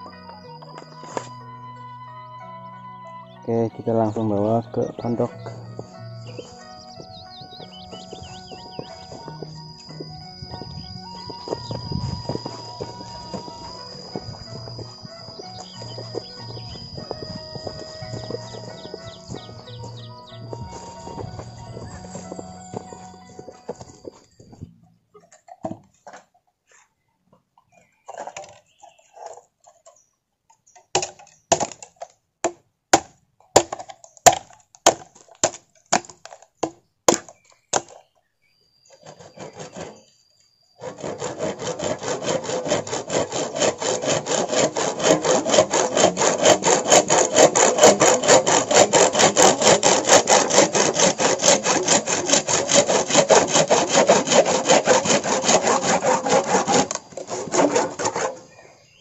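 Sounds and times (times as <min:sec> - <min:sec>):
hand saw cutting: 0:07.6 - 0:23.3, 0:39.0 - 0:40.1, 0:40.8 - 0:58.6.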